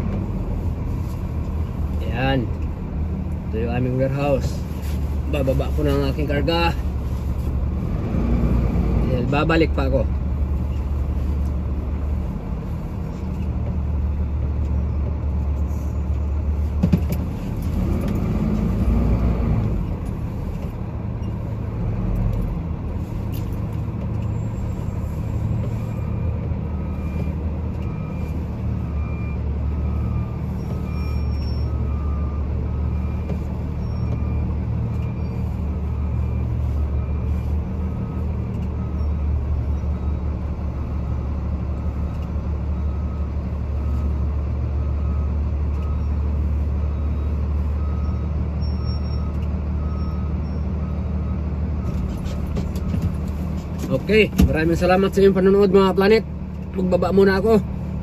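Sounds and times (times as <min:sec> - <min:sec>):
truck engine running: 0:00.0 - 0:58.0.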